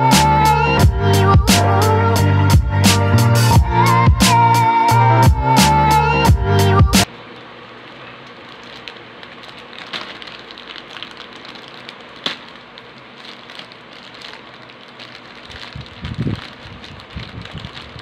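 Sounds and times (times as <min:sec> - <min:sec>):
loud intro music: 0:00.0 - 0:07.1
plastic mailer crinkling: 0:07.3 - 0:18.0.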